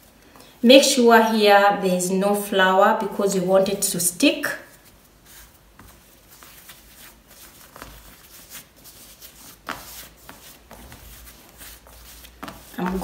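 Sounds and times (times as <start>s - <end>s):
hands patting and rubbing dough: 4.7s - 13.0s.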